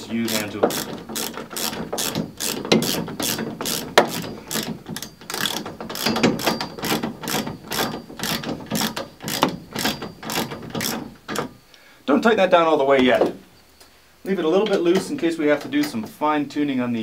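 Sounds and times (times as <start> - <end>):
ratchet wrench clicking: 0.0 - 11.0.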